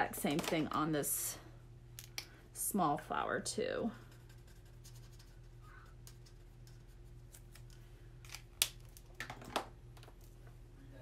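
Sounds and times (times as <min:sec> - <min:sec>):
marker scratching on cardstock: 0:04.1 - 0:07.3.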